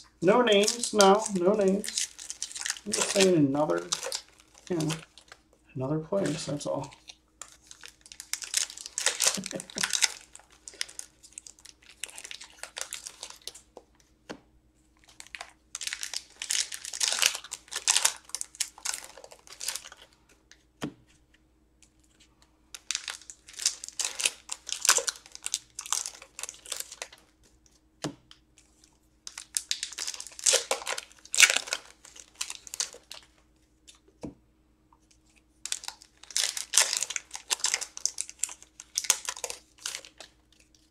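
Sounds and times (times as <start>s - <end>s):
foil wrappers tearing and crinkling: 0.5s - 5.4s, 6.2s - 13.7s, 15.0s - 20.2s, 22.8s - 27.3s, 28.6s - 33.4s, 35.6s - 40.9s.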